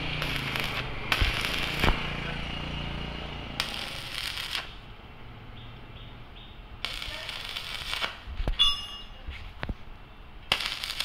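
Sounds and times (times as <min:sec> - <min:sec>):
arc welding crackling: 0:00.0 - 0:05.0, 0:05.8 - 0:08.6, 0:10.4 - 0:11.0
metal ringing: 0:08.5 - 0:09.3.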